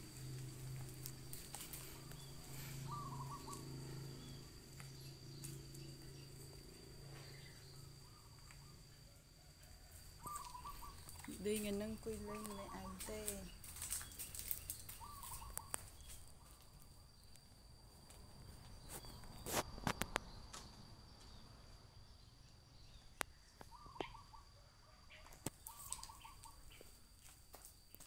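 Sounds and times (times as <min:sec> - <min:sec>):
faint chirps: 0:01.3 - 0:17.6, 0:21.3 - 0:27.0.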